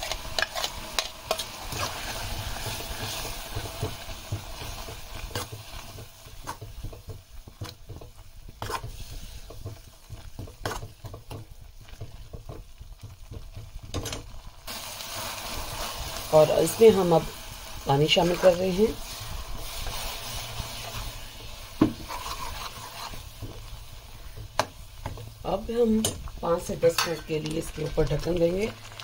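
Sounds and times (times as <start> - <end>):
wooden spatula scraping a pan: 0.0 - 14.3, 18.0 - 25.3
light sizzle: 0.0 - 29.0.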